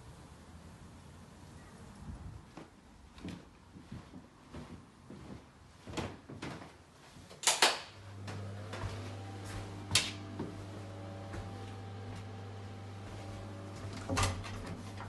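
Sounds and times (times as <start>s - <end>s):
low electrical hum: 5.0s - 15.0s
door and fitting clicks and knocks: 7.4s - 7.9s, 13.9s - 15.0s.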